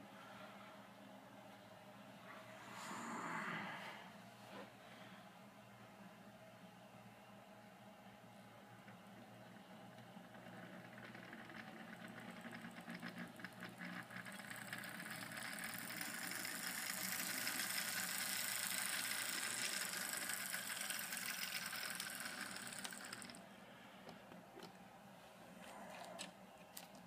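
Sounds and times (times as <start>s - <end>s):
model train motor whirring: 10.4s - 23.4s
wheels clicking on track: 10.4s - 23.4s.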